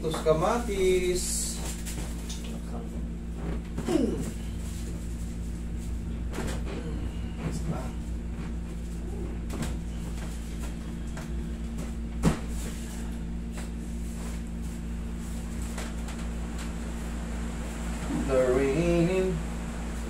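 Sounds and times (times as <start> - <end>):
air conditioner humming: 0.0 - 20.0
person humming: 3.8 - 4.6, 6.7 - 7.4.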